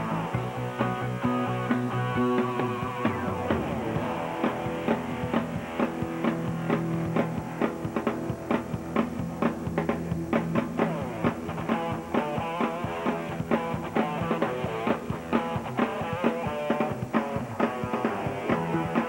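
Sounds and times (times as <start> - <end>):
instrumental rock guitar: 0.0 - 19.0
steady drum beat: 0.0 - 19.0.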